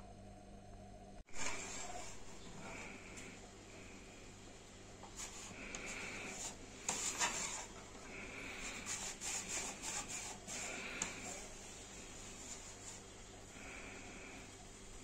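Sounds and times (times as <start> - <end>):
rolling table plates scraping: 1.3 - 2.9, 5.2 - 7.8.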